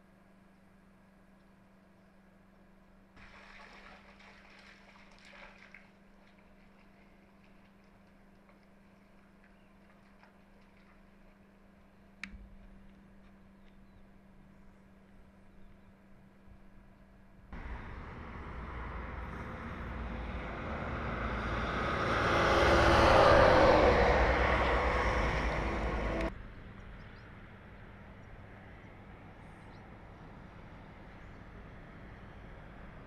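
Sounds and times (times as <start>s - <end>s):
faint outdoor hiss: 0.0s - 20.5s
vehicle driving past: 17.6s - 26.4s.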